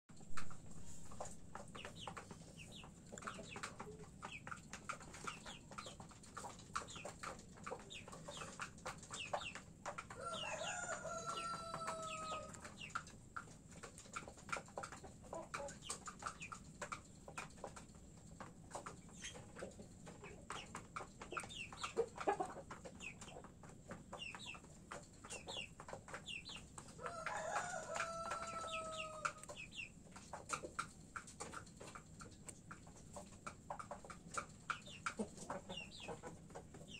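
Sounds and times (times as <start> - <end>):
beaks pecking at feed dishes: 0.1 - 36.9
chickens clucking softly: 0.1 - 36.9
rooster crowing: 10.2 - 12.5, 27.0 - 29.2.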